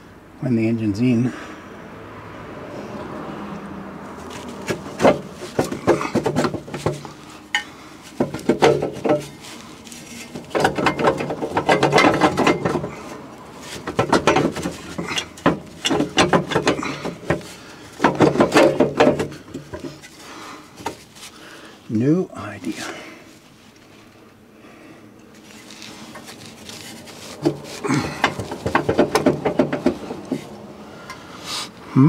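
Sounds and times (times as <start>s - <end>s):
metal pipe clanking and scraping: 4.3s - 21.3s, 25.3s - 31.2s.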